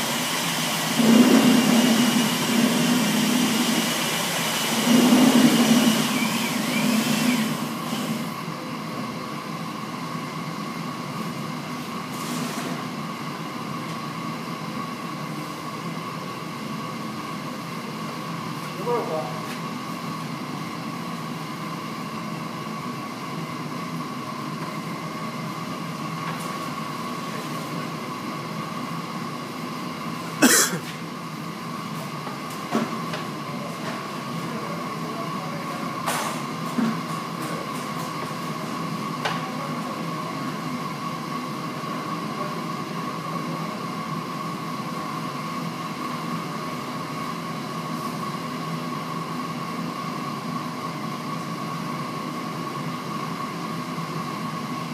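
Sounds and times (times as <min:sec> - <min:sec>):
machine hum with high tone: 0:00.0 - 0:32.3.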